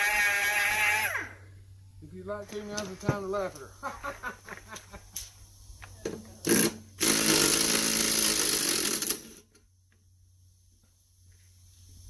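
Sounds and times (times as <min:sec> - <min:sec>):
small motor-driven machine running: 0:00.0 - 0:01.4.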